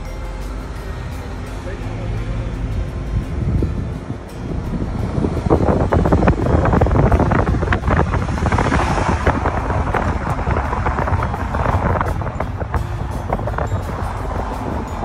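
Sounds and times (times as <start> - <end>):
low rumble: 0.0 - 15.0
wind buffeting microphone: 2.3 - 15.0.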